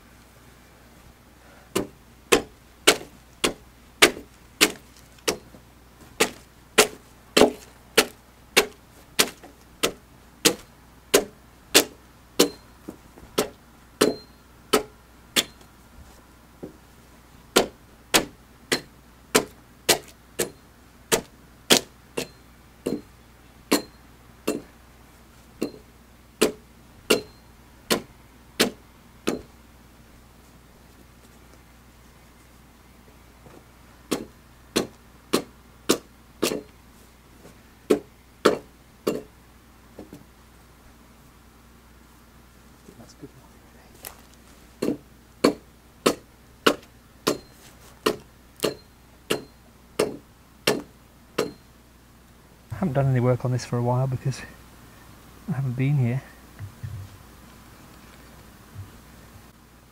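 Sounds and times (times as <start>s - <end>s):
axe chopping into log: 1.7s - 5.4s, 6.2s - 12.6s, 13.4s - 15.6s, 17.6s - 23.1s, 23.7s - 24.7s, 25.6s - 25.8s, 26.4s - 27.3s, 27.9s - 29.5s, 34.1s - 36.7s, 37.9s - 39.3s, 44.8s - 51.6s.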